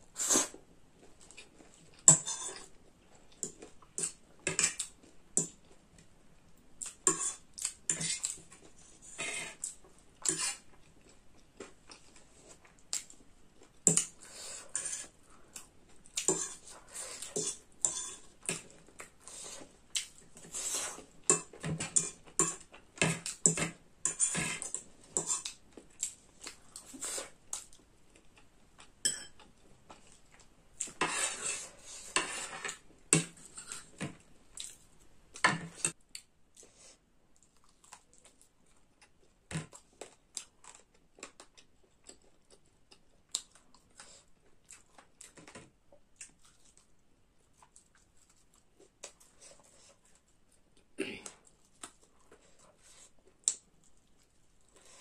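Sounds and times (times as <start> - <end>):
cutlery scraping on ceramic plate: 2.1 - 2.7, 3.4 - 4.8, 7.1 - 8.4, 9.0 - 10.6, 14.7 - 15.1, 16.2 - 18.6, 20.4 - 25.6, 29.0 - 29.4, 31.0 - 34.2.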